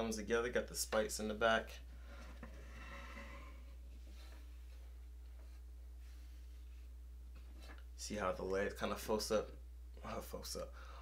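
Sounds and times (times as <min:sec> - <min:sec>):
steady low hum: 0:00.0 - 0:11.0
soft scrape on tabletop: 0:02.1 - 0:04.8.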